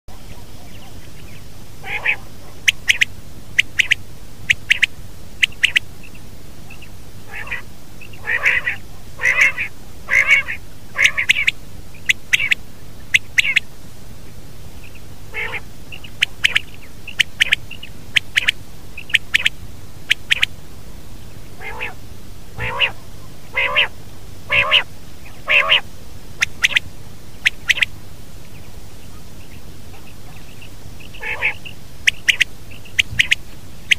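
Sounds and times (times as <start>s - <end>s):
steady low hum: 0.1s - 33.9s
quail calling: 0.2s - 13.6s, 14.8s - 20.6s, 21.5s - 22.0s, 22.6s - 28.0s, 29.0s - 33.9s.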